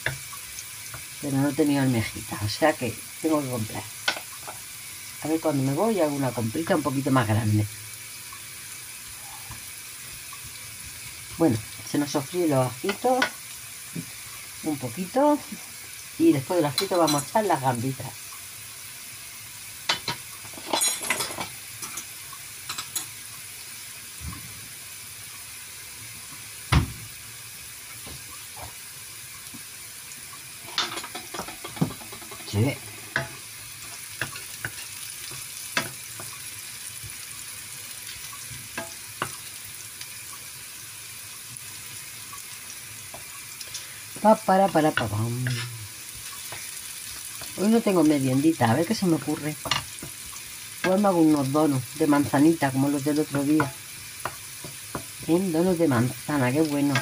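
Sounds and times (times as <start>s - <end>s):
vegetables sizzling in oil: 0.0s - 57.0s
wooden spoon stirring in pan: 4.0s - 4.8s, 30.5s - 57.0s.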